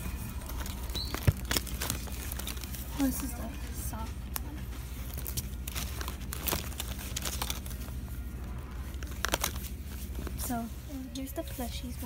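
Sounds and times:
hands rummaging through toys: 0:00.0 - 0:08.1, 0:08.7 - 0:12.0
steady low hum: 0:00.0 - 0:12.0.

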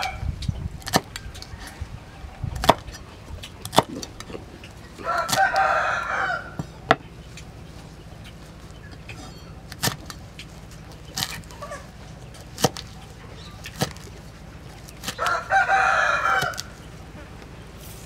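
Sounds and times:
cleaver chopping on wooden board: 0:00.8 - 0:01.2, 0:02.6 - 0:02.9, 0:03.6 - 0:04.1, 0:12.6 - 0:12.9, 0:13.7 - 0:14.1
rooster crowing: 0:05.0 - 0:06.7, 0:15.2 - 0:16.8.

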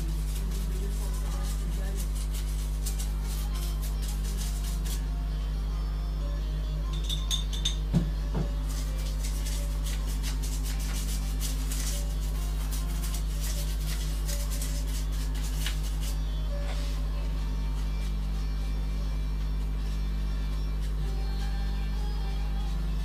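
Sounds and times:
fine scratching and tapping: 0:00.0 - 0:05.1, 0:08.4 - 0:18.4
low electrical hum: 0:00.0 - 0:23.0.

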